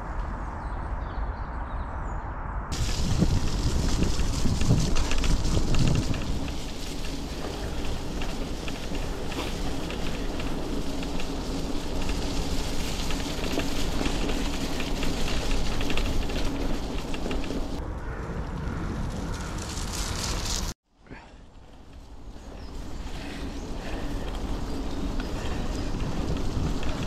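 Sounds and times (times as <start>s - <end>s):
wind rumble on microphone: 0.0s - 20.7s, 21.7s - 27.0s
bike tyres rolling on gravel: 2.7s - 27.0s.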